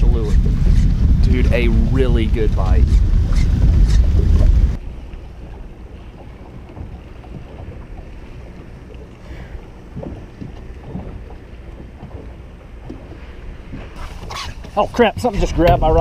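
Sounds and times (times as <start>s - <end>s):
wind rumbling on microphone: 0.0s - 16.0s.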